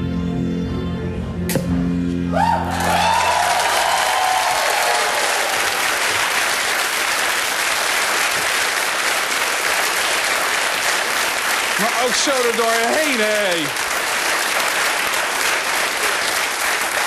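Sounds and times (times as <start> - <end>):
background music: 0.0 - 5.3
audience applause and cheering: 2.2 - 17.0
shouts from audience: 2.3 - 5.9.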